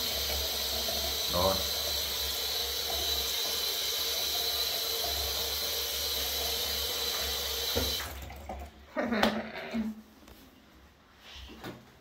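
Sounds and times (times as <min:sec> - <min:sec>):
tap running into sink: 0:04.6 - 0:08.6.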